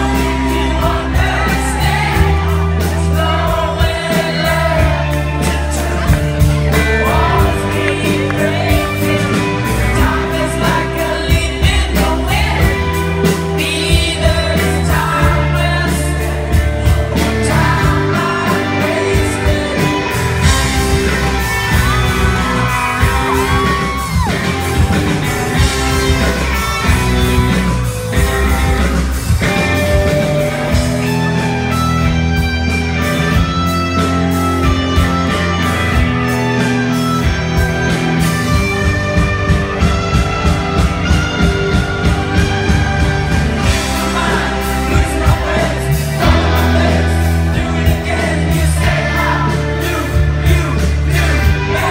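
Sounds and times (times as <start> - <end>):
person singing: 0.0 - 24.3
live rock band playing: 0.0 - 51.9.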